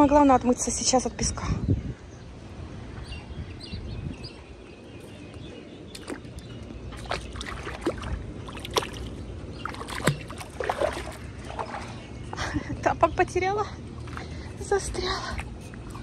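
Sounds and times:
water splashing: 5.9s - 12.3s.

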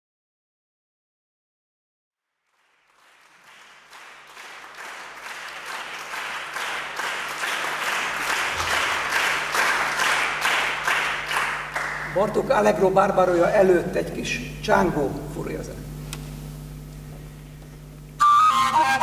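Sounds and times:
audience applauding: 2.4s - 12.5s.

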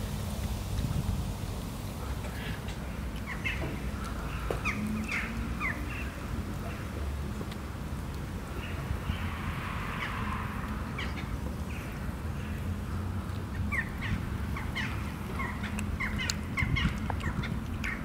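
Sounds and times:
small birds chirping: 2.1s - 7.0s, 8.5s - 18.0s.

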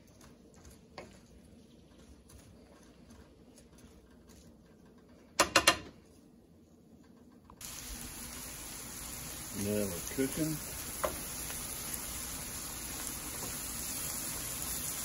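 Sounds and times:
vegetables frying sizzle: 7.6s - 15.0s
spoon scraping skillet: 10.4s - 15.0s.

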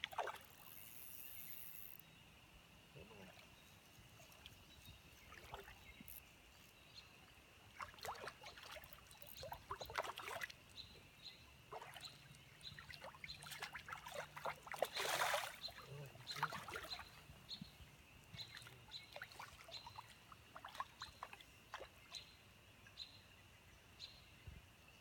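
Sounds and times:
soft water splashes: 0.0s - 0.8s, 3.0s - 6.2s, 7.1s - 23.0s
creek water trickling: 0.0s - 24.3s.

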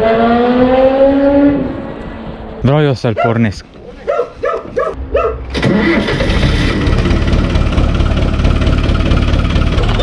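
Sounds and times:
tractor diesel engine idling: 5.6s - 10.0s.

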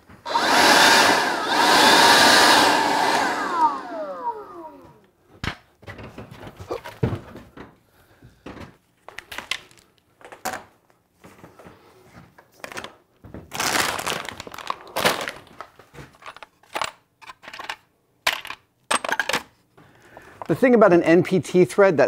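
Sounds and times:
plastic crinkling: 13.5s - 16.3s
tools clicking and knocking: 16.2s - 19.5s.

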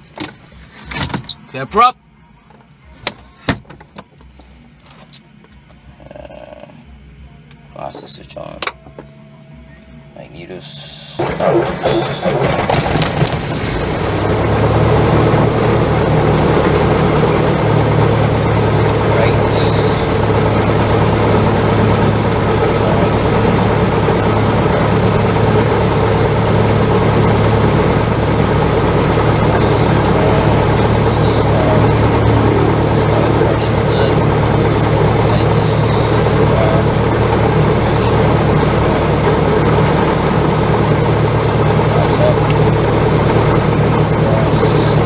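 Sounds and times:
propeller plane engine idling: 10.6s - 45.0s.

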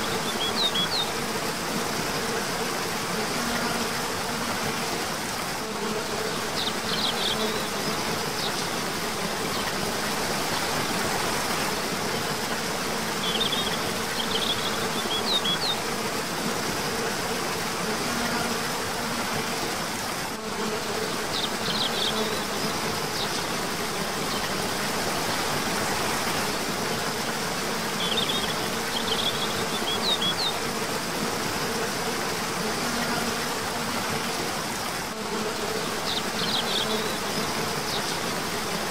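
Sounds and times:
waterfall rushing: 6.4s - 35.2s.

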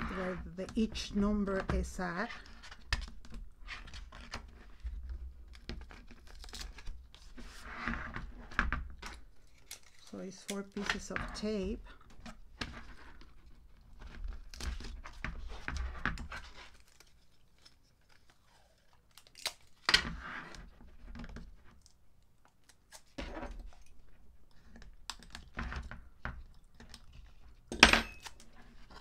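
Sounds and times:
tape tearing: 5.5s - 7.3s, 9.0s - 11.0s, 12.8s - 20.7s, 22.6s - 23.9s.

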